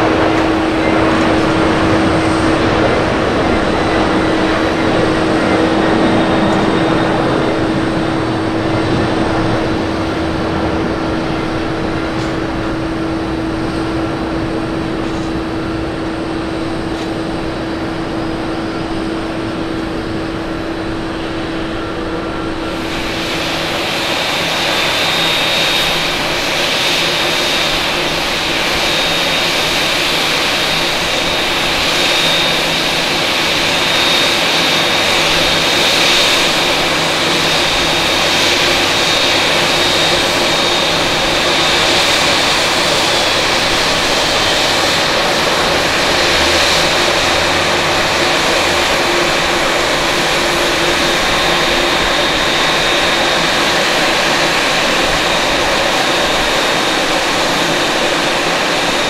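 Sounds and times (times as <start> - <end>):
deep rumble: 0.0 - 25.3
high steady whine: 0.0 - 59.0
jet engines rushing: 0.0 - 59.0.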